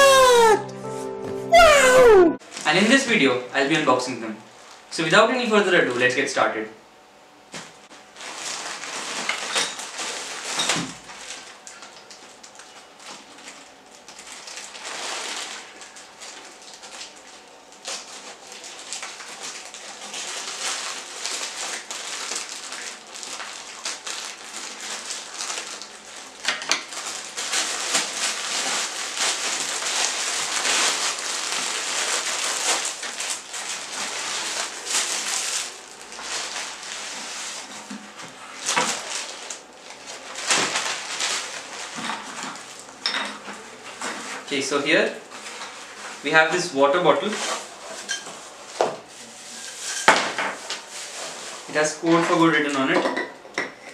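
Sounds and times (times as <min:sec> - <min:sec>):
plastic crinkling and rustling: 0:07.6 - 0:46.4, 0:47.2 - 0:53.0.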